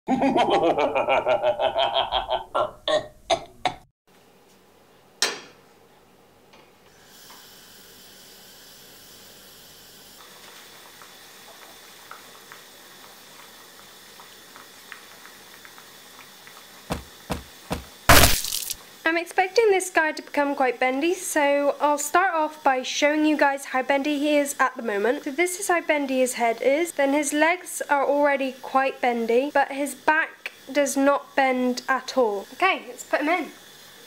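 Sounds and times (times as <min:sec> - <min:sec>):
gas burner hissing: 0:06.8 - 0:34.0
water ticking and popping: 0:10.8 - 0:17.8.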